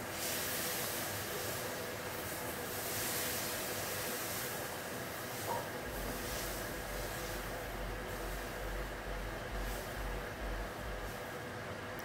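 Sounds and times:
background hiss: 0.0s - 11.9s
faint hum: 4.7s - 12.0s.

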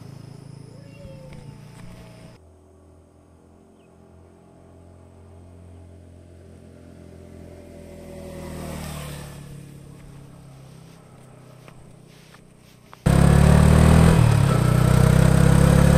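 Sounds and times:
motorcycle engine running: 7.2s - 15.9s.

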